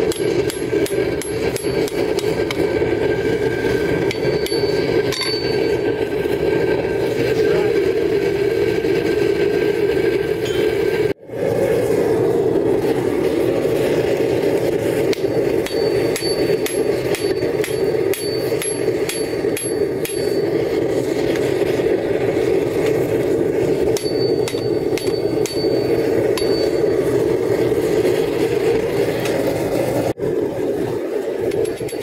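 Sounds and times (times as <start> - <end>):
forge rushing noise: 0.0 - 32.0
hammer ringing on anvil: 4.1 - 5.8, 15.2 - 20.6, 23.9 - 26.9.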